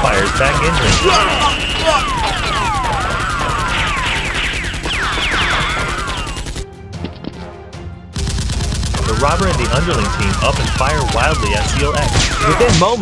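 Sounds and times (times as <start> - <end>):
rapid automatic gunfire effects: 0.0 - 6.6, 8.2 - 13.0.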